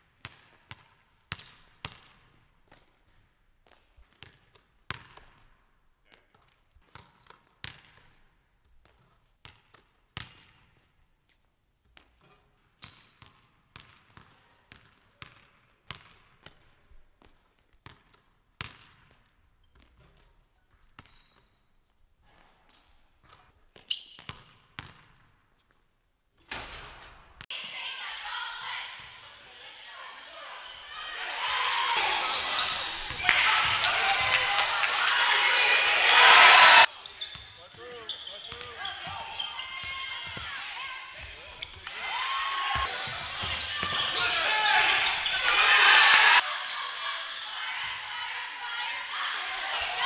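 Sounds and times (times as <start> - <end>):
sneaker squeaks: 6.9 - 9.2, 12.0 - 13.3, 13.9 - 15.3, 19.6 - 21.7, 22.4 - 24.9, 29.0 - 30.9, 32.0 - 36.0, 36.8 - 41.9, 42.8 - 45.5.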